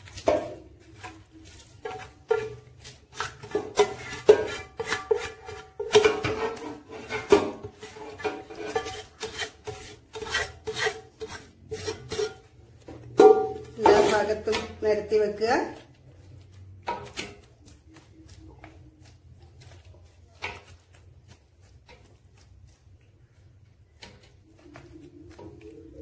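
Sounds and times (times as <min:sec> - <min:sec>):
spoon scraping pan: 0:00.0 - 0:26.0.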